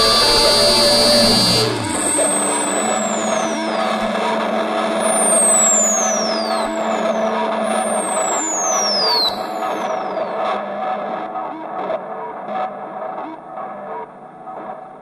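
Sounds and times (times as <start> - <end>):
high whistle sliding downward: 0.0 - 10.4
steady held tones: 0.0 - 10.4.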